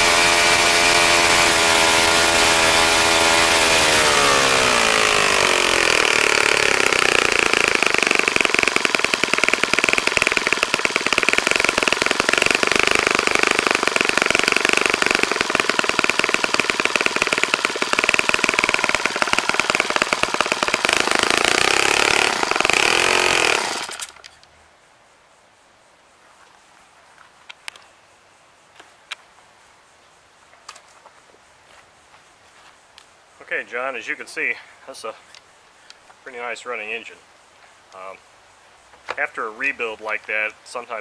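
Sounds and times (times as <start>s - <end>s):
model engine idling: 0.0s - 24.2s.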